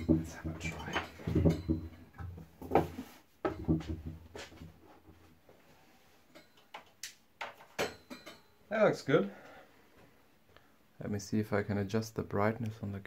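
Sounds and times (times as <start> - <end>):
knocks and clunks of metal frame: 0.0 - 5.3, 6.3 - 8.5.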